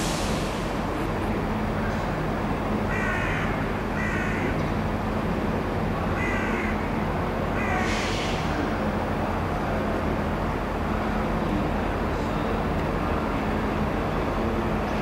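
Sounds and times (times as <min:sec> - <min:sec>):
diesel locomotive engine running low: 0:00.0 - 0:15.0
crow cawing: 0:02.9 - 0:04.5, 0:06.2 - 0:06.8.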